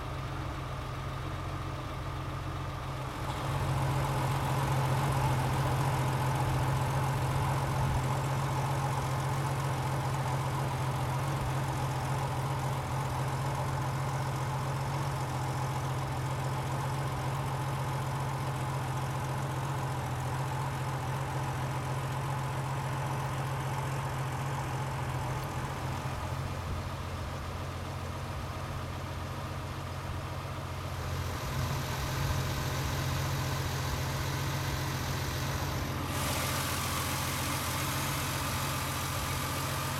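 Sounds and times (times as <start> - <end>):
car engine idling: 0.0 - 39.9.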